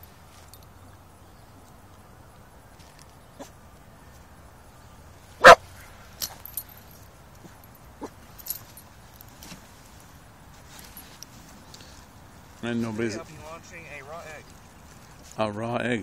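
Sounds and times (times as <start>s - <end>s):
dog barking: 5.4s - 5.6s.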